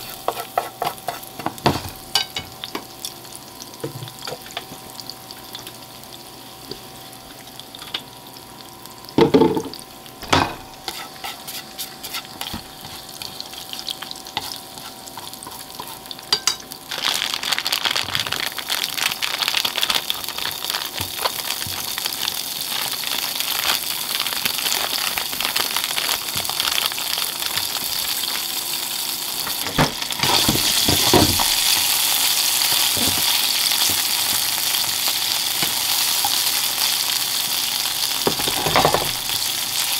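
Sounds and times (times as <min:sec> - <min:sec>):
chopsticks stirring in pan: 0:00.0 - 0:02.4, 0:10.6 - 0:16.6
food sizzling in oil: 0:00.0 - 0:39.9.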